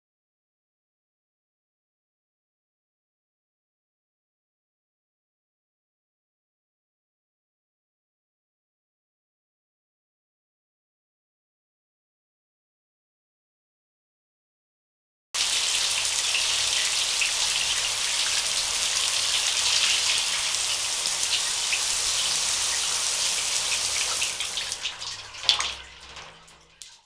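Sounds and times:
shower water spraying: 0:15.4 - 0:27.0
water dripping: 0:15.4 - 0:27.0.

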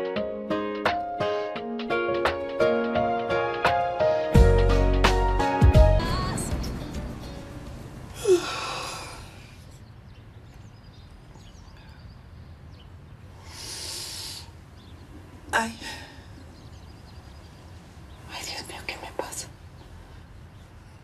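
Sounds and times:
music: 0:00.0 - 0:08.2
woman groaning: 0:08.1 - 0:09.4
woman breathing heavily: 0:08.1 - 0:09.8, 0:13.4 - 0:14.6.

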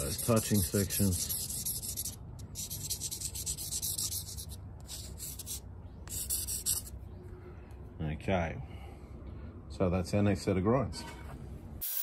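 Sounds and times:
marker scratching on metal: 0:00.0 - 0:06.9.

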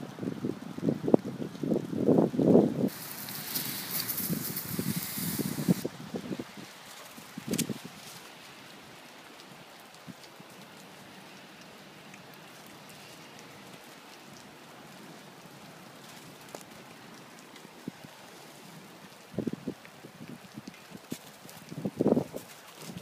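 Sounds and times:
icy snow pattering on leaves: 0:00.0 - 0:23.0.

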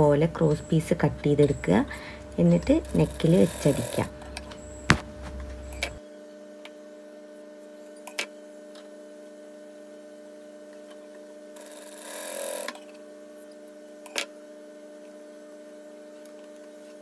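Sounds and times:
low electrical hum: 0:00.0 - 0:11.6
cloth rustling: 0:04.6 - 0:06.0.

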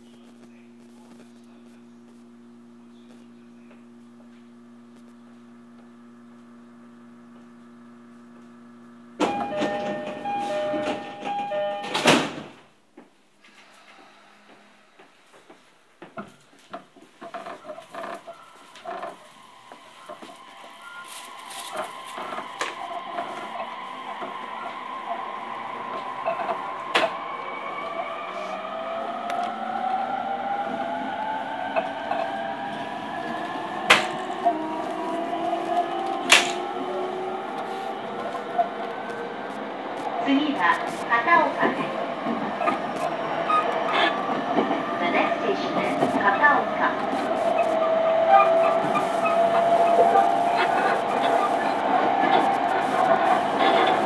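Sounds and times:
low steady equipment hum: 0:00.0 - 0:09.3
electric train motor whine: 0:00.0 - 0:12.3, 0:16.1 - 0:54.0
two-tone door chime: 0:09.2 - 0:12.4
train doors banging shut: 0:09.2 - 0:12.6, 0:33.8 - 0:34.3, 0:36.2 - 0:36.7.

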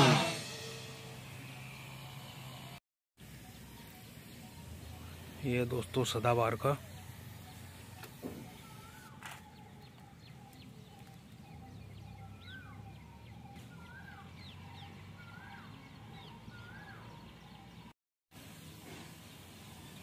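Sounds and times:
bird calling: 0:03.2 - 0:17.9.

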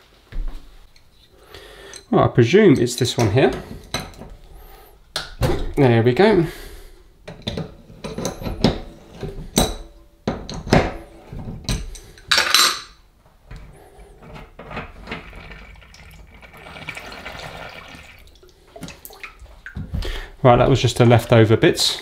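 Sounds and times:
water trickling: 0:15.2 - 0:20.0.

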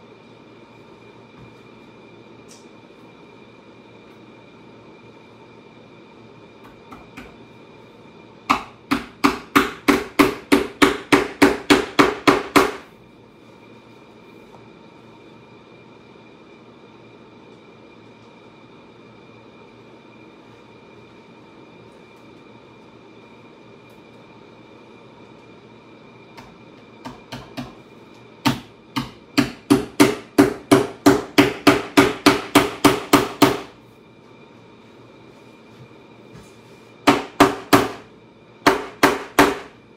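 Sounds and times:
hammer striking tacks: 0:08.5 - 0:12.8, 0:28.4 - 0:33.7, 0:37.1 - 0:38.0, 0:38.6 - 0:39.7.

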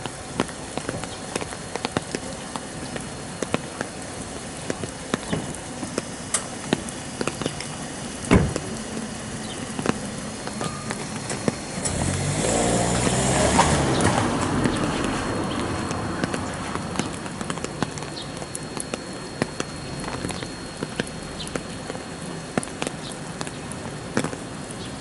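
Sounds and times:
heavy raindrops ticking: 0:00.0 - 0:25.0
rain falling: 0:00.0 - 0:25.0
dull thump: 0:08.3 - 0:08.6.

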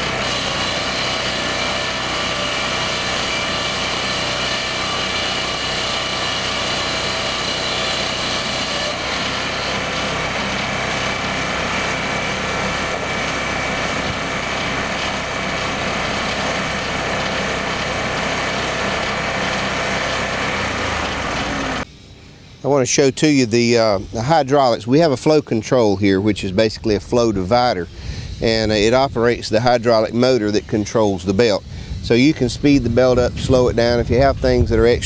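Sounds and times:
board edger engine running: 0:00.0 - 0:21.9
saw blades cutting wood: 0:00.0 - 0:21.9, 0:26.8 - 0:34.6.

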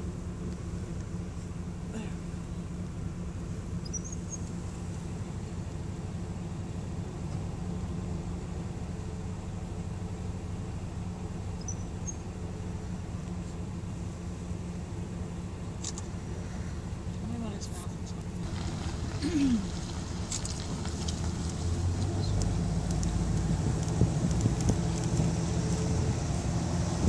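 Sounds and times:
vehicle engine idling: 0:00.0 - 0:27.0
faint high chirps: 0:03.8 - 0:04.5, 0:11.5 - 0:12.3.

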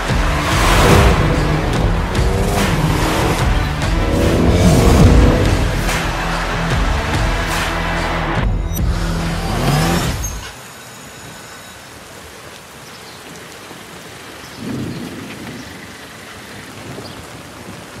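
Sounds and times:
music: 0:00.0 - 0:11.8
steady rain hiss: 0:10.5 - 0:18.0.

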